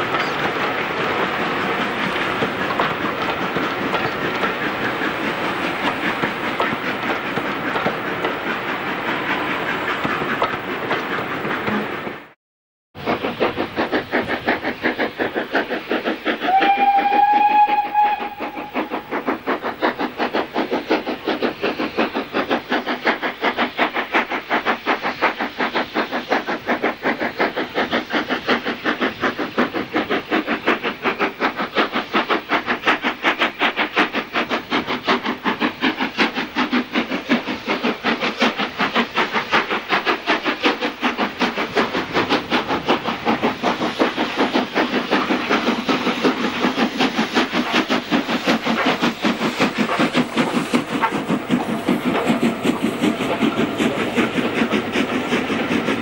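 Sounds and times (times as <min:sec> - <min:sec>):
steam locomotive chuffing: 0:00.0 - 0:12.4, 0:13.0 - 0:56.0
steam whistle: 0:16.4 - 0:19.0.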